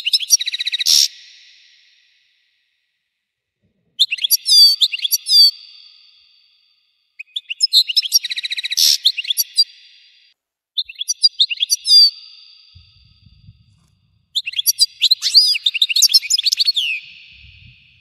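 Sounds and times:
finch twittering song: 0:04.0 - 0:06.1, 0:07.2 - 0:10.0, 0:10.8 - 0:13.6, 0:14.4 - 0:18.0.

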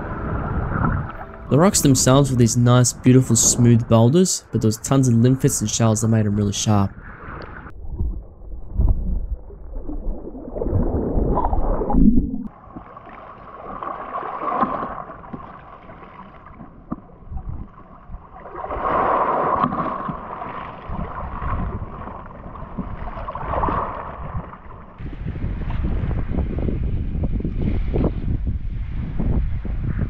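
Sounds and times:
wind buffeting microphone: 0:00.0 - 0:01.6, 0:20.9 - 0:30.0
small waves lapping: 0:12.6 - 0:25.9.

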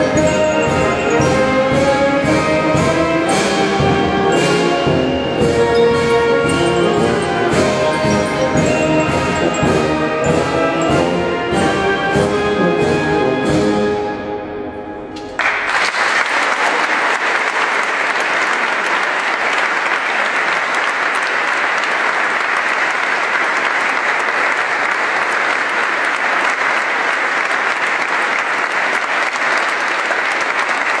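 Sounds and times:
audience applauding: 0:15.4 - 0:31.0.

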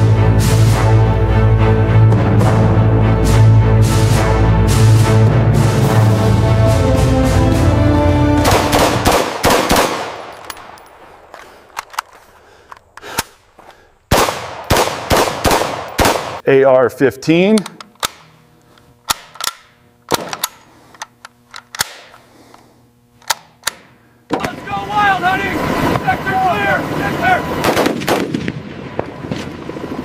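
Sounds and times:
rifle gunfire: 0:08.4 - 0:11.2, 0:14.1 - 0:16.4, 0:19.1 - 0:20.5, 0:27.6 - 0:29.6
rifle clicks: 0:08.5 - 0:13.5, 0:17.6 - 0:18.4, 0:19.0 - 0:22.2, 0:23.2 - 0:23.9.

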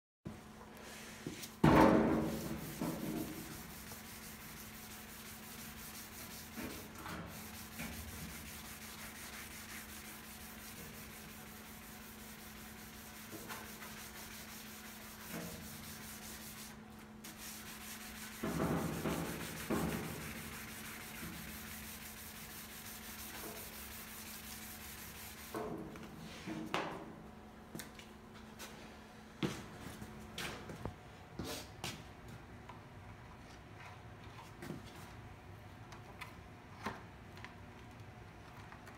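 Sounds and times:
sandpaper rubbing on steel: 0:02.3 - 0:25.5.

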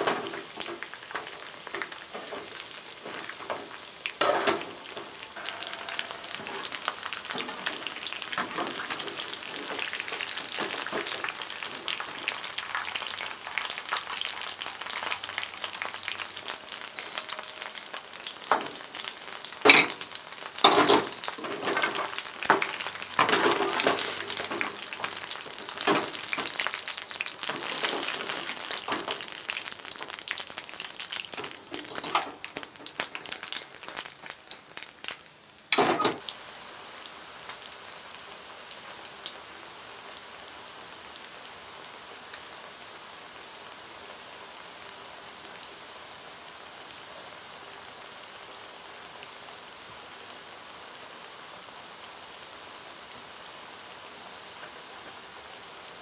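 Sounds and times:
oil sizzling in a frying pan: 0:00.0 - 0:56.0
metal skimmer scraping a pan: 0:02.2 - 0:09.9.

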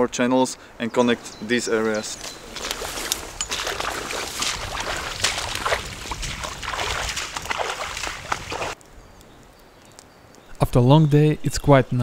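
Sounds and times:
footsteps splashing through water: 0:02.2 - 0:08.8.

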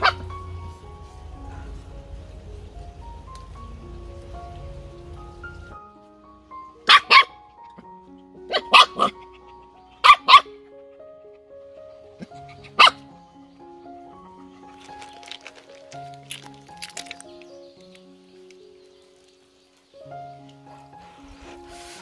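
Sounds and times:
puppy barking: 0:00.0 - 0:00.4, 0:06.8 - 0:10.7, 0:12.2 - 0:13.1
background music simple melody: 0:00.0 - 0:22.0.

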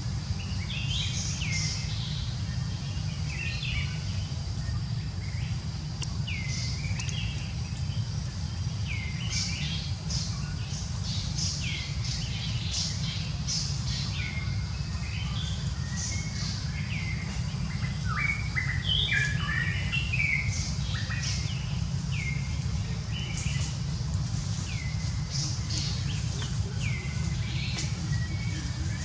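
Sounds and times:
steady low rumble: 0:00.0 - 0:29.0
wild birds chirping: 0:00.0 - 0:29.0.

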